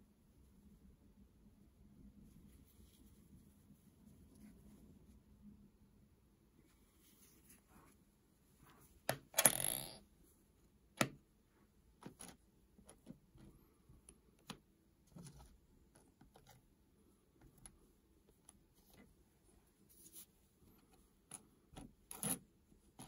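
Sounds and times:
coin scraping: 9.4s - 10.0s
coins clicking on hard surface: 9.4s - 10.0s.

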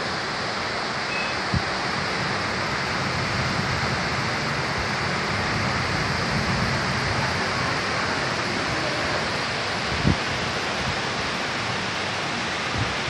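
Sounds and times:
floodwater rushing: 0.0s - 13.0s
heavy rain pouring: 0.0s - 13.0s.

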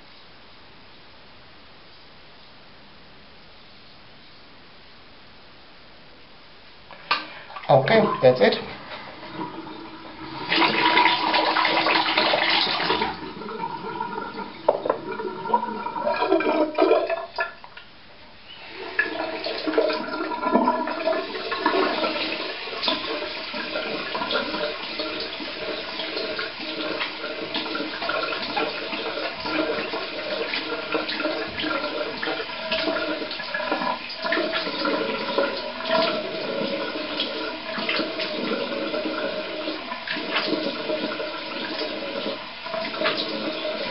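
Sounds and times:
tap water running into basin: 6.9s - 17.9s, 18.5s - 43.9s.

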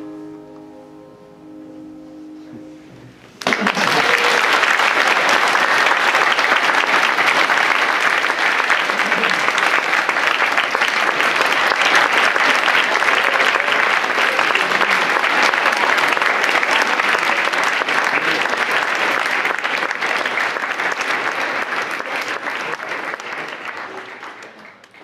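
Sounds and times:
piano chord: 0.0s - 3.4s
audience applause: 3.4s - 25.0s.

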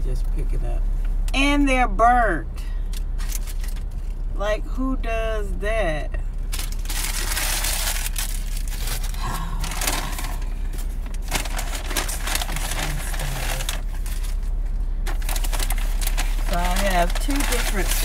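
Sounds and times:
steady low hum: 0.0s - 18.0s
paper bag and wrappers rustling: 3.2s - 4.1s, 6.5s - 18.0s.

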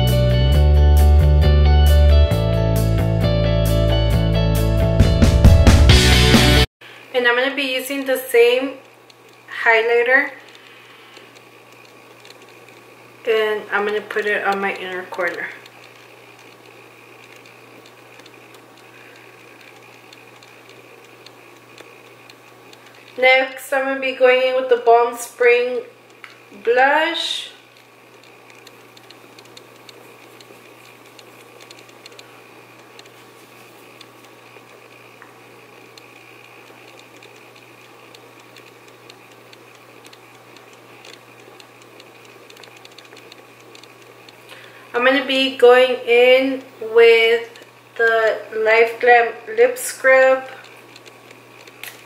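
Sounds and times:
low hum and hiss: 6.4s - 52.0s
faint small clicks: 10.4s - 12.8s, 27.7s - 33.2s, 33.9s - 44.8s.

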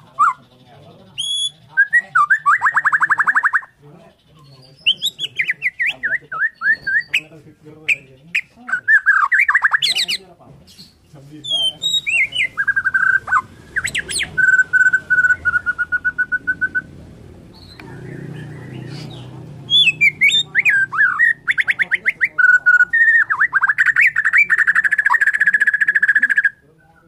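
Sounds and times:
bird trills: 1.1s - 7.3s, 7.9s - 10.2s, 11.4s - 16.9s, 17.5s - 27.0s
bird singing whistled notes: 1.2s - 3.7s, 4.4s - 7.3s, 11.4s - 16.9s, 17.5s - 27.0s.

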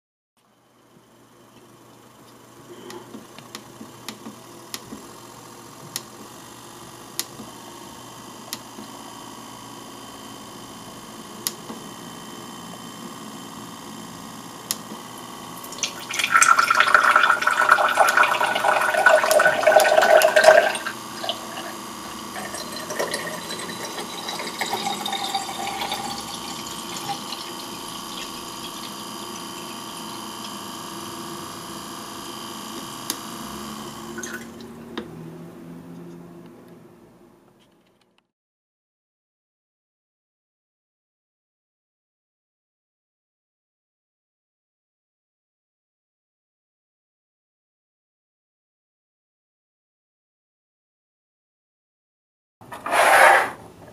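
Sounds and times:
water trickling into glass: 22.4s - 28.2s.

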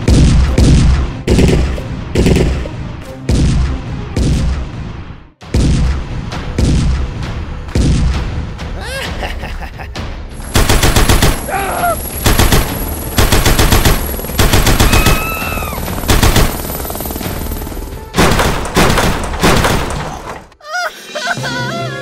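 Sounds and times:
machine-gun fire bursts: 0.1s - 2.6s, 10.4s - 20.3s.

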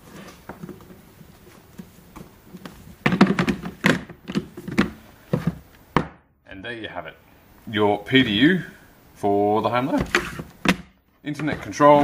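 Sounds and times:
cable and plug knocking on plastic: 3.0s - 6.2s.

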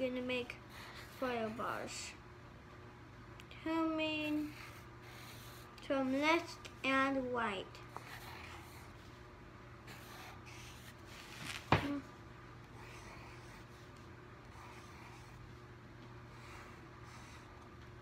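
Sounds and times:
pencil scratching on paper: 0.7s - 2.0s, 4.4s - 7.1s, 7.9s - 9.2s, 9.9s - 11.7s, 12.7s - 15.5s, 16.3s - 17.6s.

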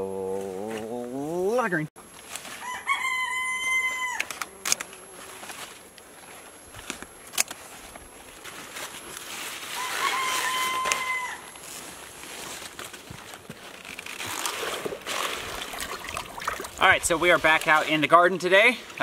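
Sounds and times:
leaves rustling: 0.2s - 19.0s
rooster crowing: 2.5s - 4.6s, 9.6s - 11.6s.

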